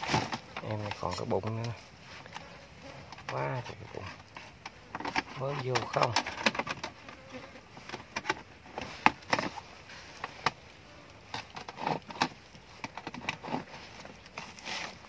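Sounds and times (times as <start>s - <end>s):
rustling: 0.0s - 15.0s
knocks and snaps: 4.2s - 7.0s, 11.3s - 14.5s.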